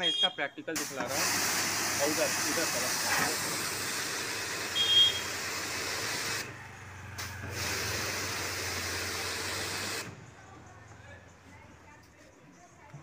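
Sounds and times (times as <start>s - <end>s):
water spray hissing: 0.0s - 10.2s.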